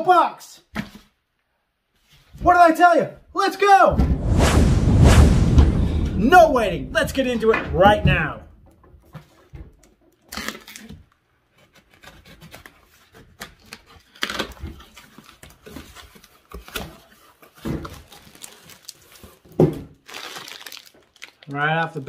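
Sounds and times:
blade slitting packing tape: 0:13.4 - 0:15.0.

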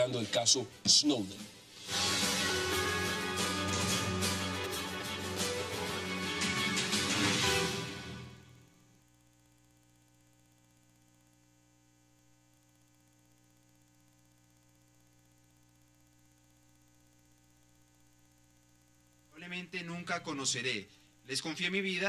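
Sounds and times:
faint mains hum: 0:00.0 - 0:05.9, 0:07.5 - 0:22.0
theme music: 0:01.8 - 0:08.6.

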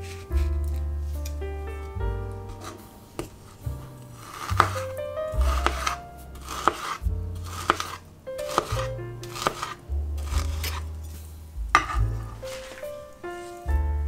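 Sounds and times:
background music: 0:00.0 - 0:14.0
knife slicing on cutting board: 0:02.5 - 0:11.2, 0:11.8 - 0:13.7.

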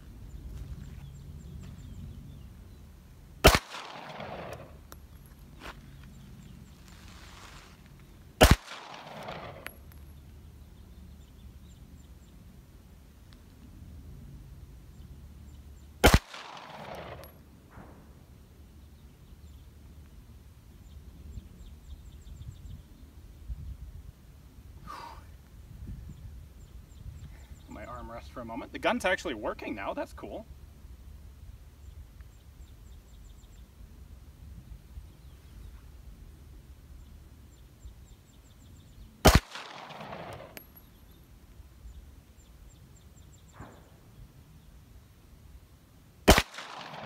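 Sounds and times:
pistol shot with echo: 0:03.4 - 0:04.8, 0:08.4 - 0:09.8, 0:16.0 - 0:17.9, 0:39.2 - 0:40.6, 0:46.3 - 0:47.0
wind noise on microphone: 0:21.3 - 0:27.8.

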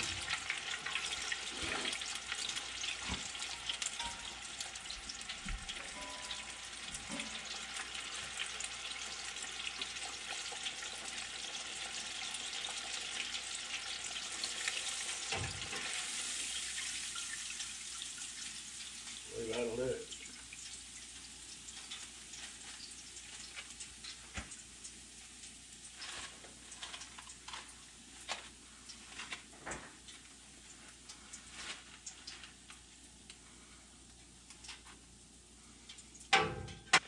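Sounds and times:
fish frying in hot oil: 0:00.0 - 0:37.0.

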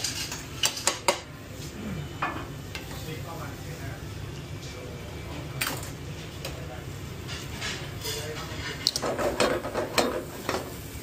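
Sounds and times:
metal pans clanking: 0:07.2 - 0:10.7.

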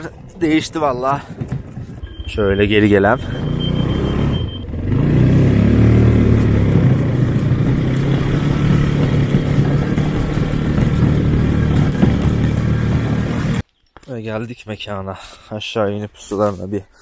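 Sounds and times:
vehicle engine revving: 0:01.9 - 0:13.6.

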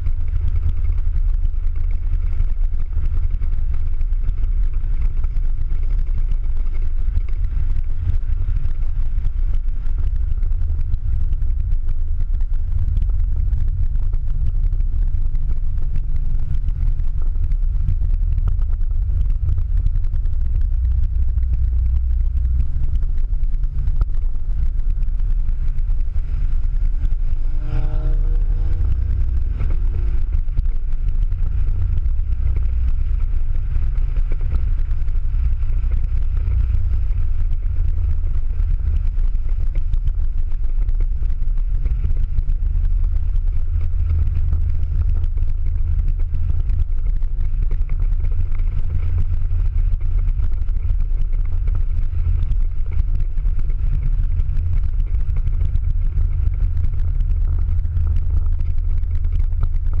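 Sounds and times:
car engine droning inside cabin: 0:00.0 - 1:00.0
tyres on wet track: 0:23.7 - 0:40.0.

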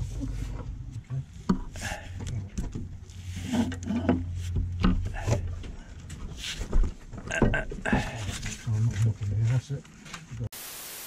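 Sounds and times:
low steady hum: 0:00.0 - 0:09.5.

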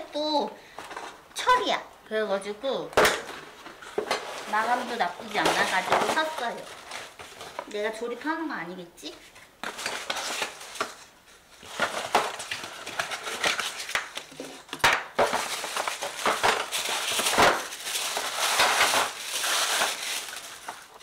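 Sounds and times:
cardboard and paper rustling: 0:03.2 - 0:08.0, 0:09.2 - 0:21.0.

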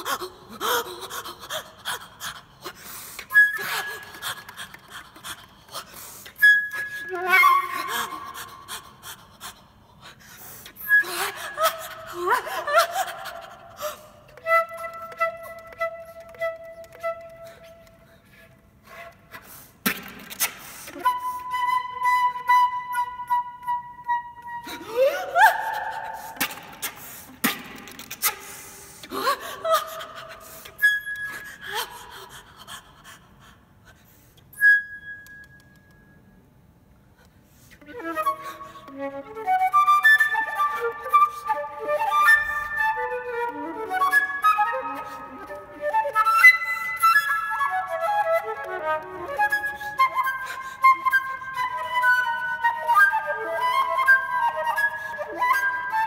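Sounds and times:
breathy gasping flute sounds: 0:00.0 - 0:14.4, 0:24.4 - 0:34.6, 0:37.2 - 0:39.1, 0:49.7 - 0:51.5
swooping flute cries: 0:03.2 - 0:05.4, 0:06.4 - 0:09.0, 0:10.8 - 0:18.0, 0:20.9 - 0:27.6, 0:37.8 - 0:56.0
flute key clicks: 0:35.2 - 0:36.2.

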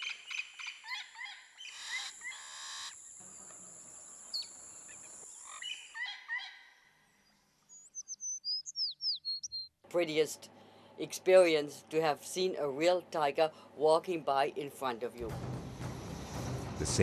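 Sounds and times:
birds chirping: 0:00.0 - 0:09.8.

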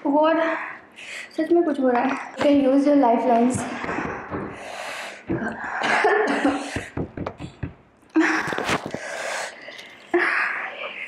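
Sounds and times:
person gasping and hissing breaths: 0:03.6 - 0:07.0.

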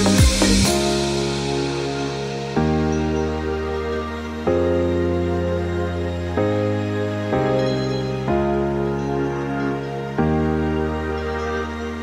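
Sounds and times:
slow sustained chords music: 0:00.0 - 0:12.0.

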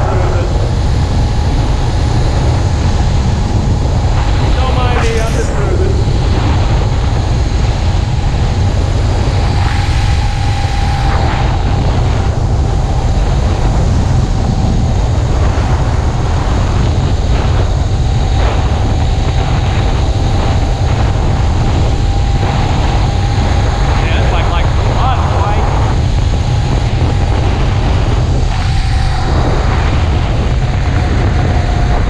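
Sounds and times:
small engine running: 0:00.0 - 0:32.0
wind buffeting microphone: 0:00.0 - 0:32.0.

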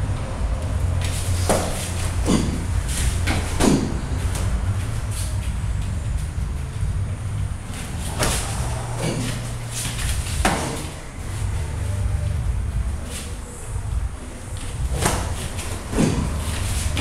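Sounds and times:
steady low hum: 0:00.0 - 0:17.0
sharp slaps of kicks landing: 0:01.0 - 0:05.6, 0:07.8 - 0:11.0, 0:14.8 - 0:17.0.

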